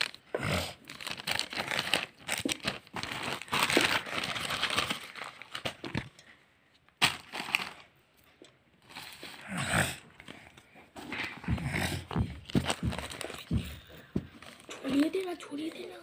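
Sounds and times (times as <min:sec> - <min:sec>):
foil wrappers crinkling: 0:00.0 - 0:06.2, 0:07.0 - 0:07.9, 0:12.4 - 0:16.0.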